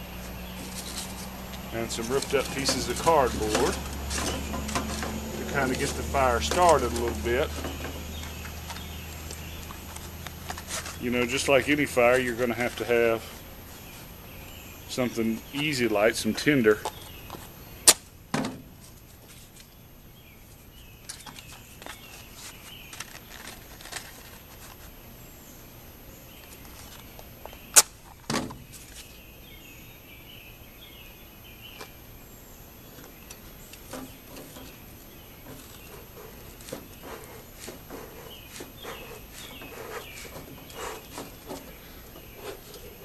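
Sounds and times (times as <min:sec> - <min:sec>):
faint chirping: 0:28.7 - 0:43.0.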